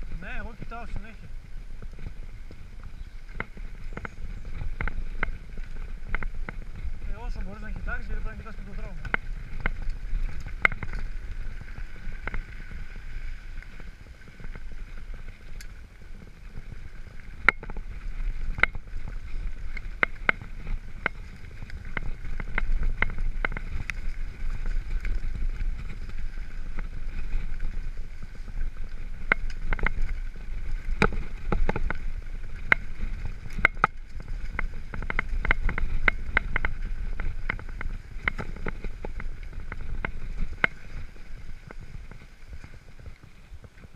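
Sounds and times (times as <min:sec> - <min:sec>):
bike knocking and rattling: 0:00.0 - 0:43.9
bike tyres rumbling on dirt: 0:00.0 - 0:43.9
wind: 0:00.0 - 0:43.9.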